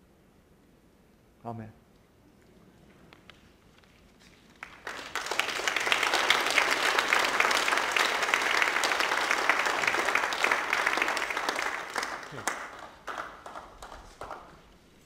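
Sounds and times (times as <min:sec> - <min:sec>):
congregation applauding: 0:04.5 - 0:14.7.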